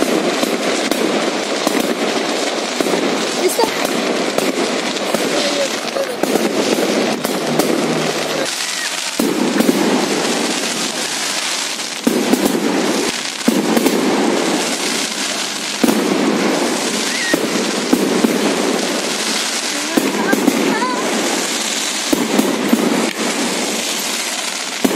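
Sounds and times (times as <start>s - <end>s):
distant explosions rumbling: 0.0s - 24.9s
fireworks bangs and crackles: 0.0s - 24.9s.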